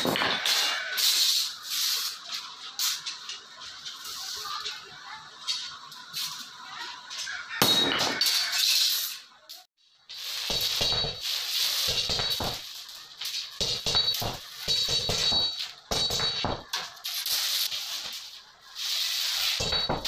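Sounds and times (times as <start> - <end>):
sharp metallic knocks: 13.6 - 16.8.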